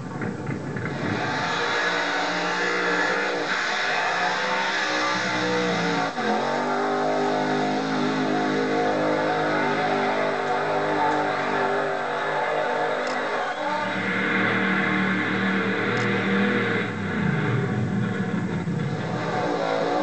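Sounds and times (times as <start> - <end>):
drag car engine revving high: 0.0 - 20.0.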